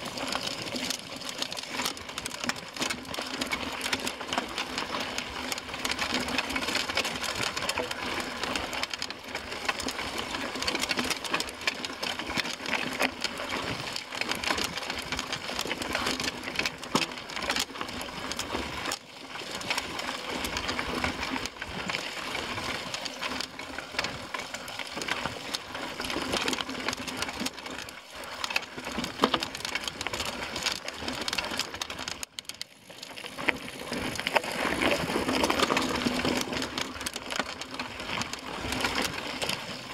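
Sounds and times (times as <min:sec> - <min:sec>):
mountain bike rattling: 0:00.0 - 0:39.9
tyres crunching over gravel: 0:23.0 - 0:39.9.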